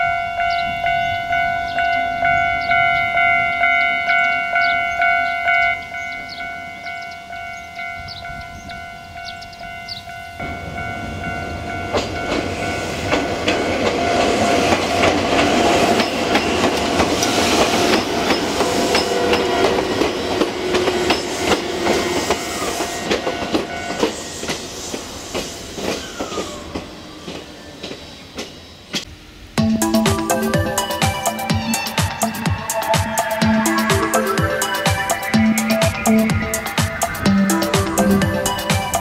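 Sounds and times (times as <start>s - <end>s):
crossing warning bell ringing: 0.0s - 24.3s, 29.6s - 39.0s
train rumble: 7.8s - 39.0s
train wheels clacking over rail joints: 11.9s - 29.1s.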